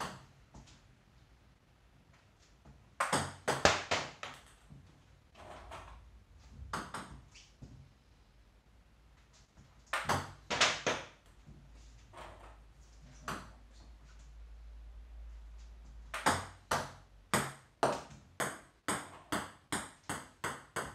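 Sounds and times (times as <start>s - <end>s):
ping pong ball ticking: 16.2s - 20.9s.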